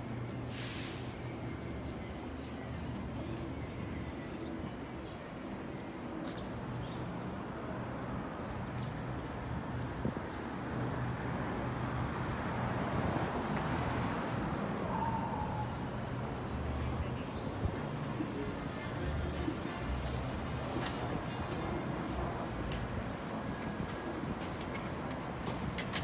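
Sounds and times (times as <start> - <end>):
traffic hum: 0.0 - 26.0.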